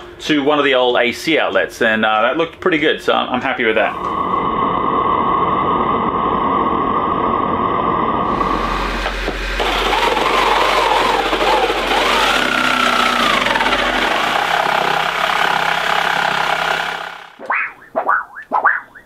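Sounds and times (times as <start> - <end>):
jigsaw cutting wood: 8.3 - 17.4.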